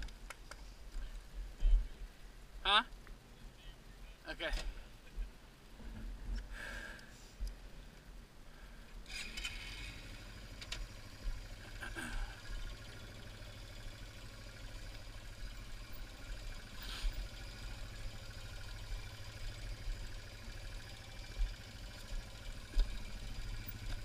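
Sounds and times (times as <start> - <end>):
bike rattles and clicks: 9.0 - 24.0
motorcycle engine running low: 9.2 - 24.0.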